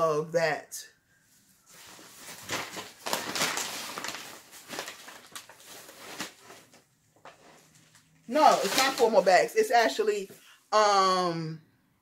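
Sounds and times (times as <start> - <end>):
paper bag crinkling: 1.7 - 9.6.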